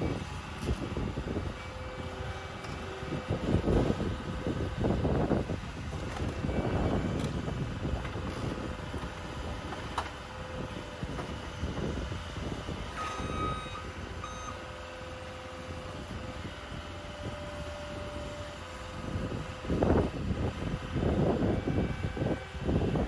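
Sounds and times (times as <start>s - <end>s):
diesel engine running: 0.0s - 23.0s
reversing alarm beeping: 13.0s - 14.7s.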